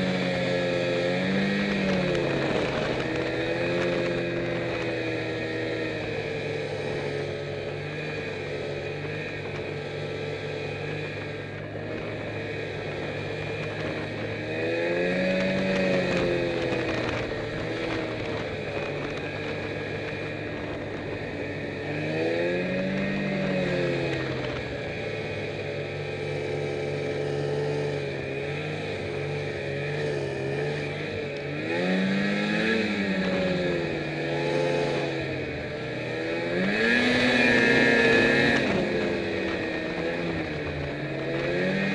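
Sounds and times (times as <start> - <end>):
snowmobile engine revving: 0.0 - 41.9.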